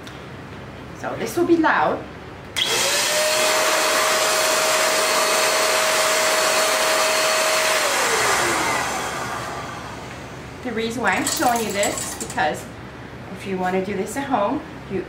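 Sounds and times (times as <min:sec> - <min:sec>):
blow dryer motor whine: 0:02.6 - 0:10.5.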